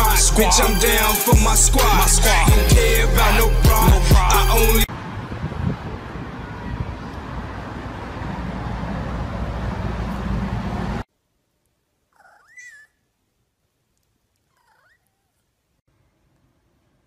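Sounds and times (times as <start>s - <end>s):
music: 0.0s - 4.9s
cat meowing: 14.5s - 15.4s.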